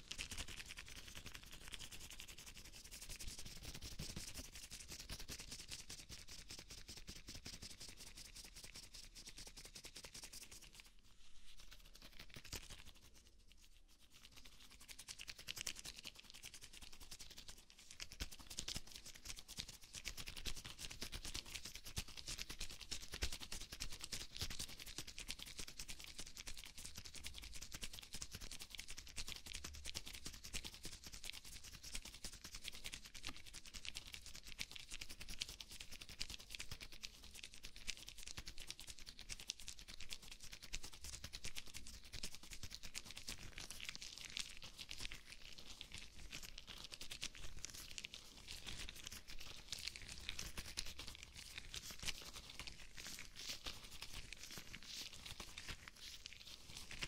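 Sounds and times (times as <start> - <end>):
rubber gloves crinkling: 45.2 - 57.0.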